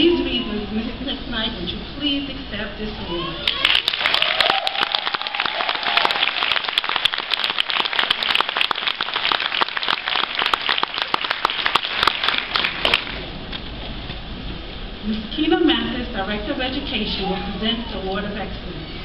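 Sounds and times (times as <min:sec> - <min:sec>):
audience applauding: 0:03.4 - 0:13.2.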